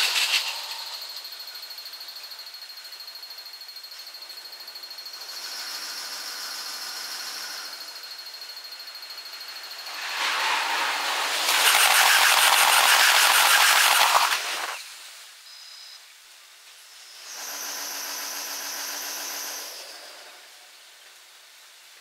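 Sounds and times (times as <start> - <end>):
steady high whine: 7.5 - 16.0
train wheels rushing on rails: 9.7 - 14.8.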